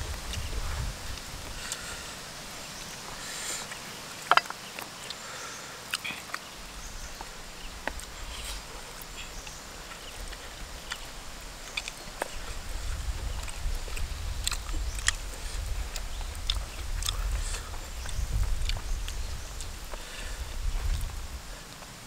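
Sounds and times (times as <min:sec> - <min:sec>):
chewing and lip smacking: 0:03.6 - 0:05.2, 0:05.9 - 0:06.6, 0:07.2 - 0:20.0
small eating clicks: 0:03.6 - 0:20.1.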